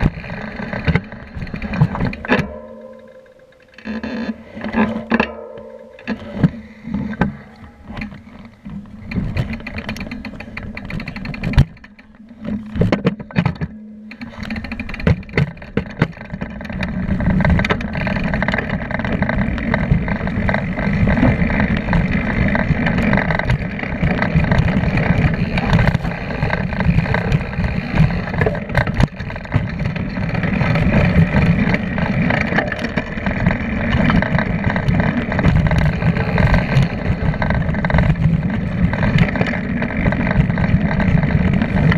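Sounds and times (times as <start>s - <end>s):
bike clattering over rocks: 0.0s - 41.9s
bike rattling: 0.0s - 41.9s
tyre noise: 0.0s - 41.9s
wind on microphone: 16.4s - 41.9s.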